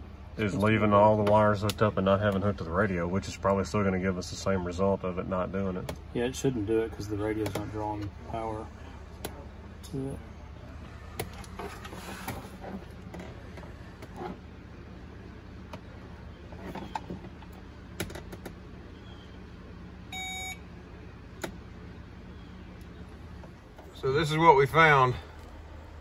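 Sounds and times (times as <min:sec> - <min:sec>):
steady low hum: 0:00.0 - 0:26.0
short electronic beep: 0:20.1 - 0:20.6.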